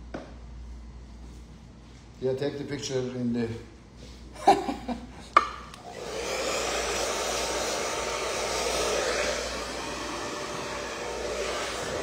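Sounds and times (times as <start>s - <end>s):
hair dryer blowing: 5.7s - 12.0s.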